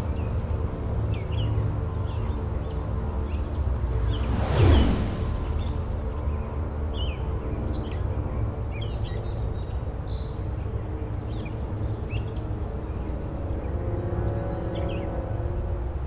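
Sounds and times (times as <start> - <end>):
birds chirping: 0.0 - 15.4
steady low rumble: 1.6 - 8.8.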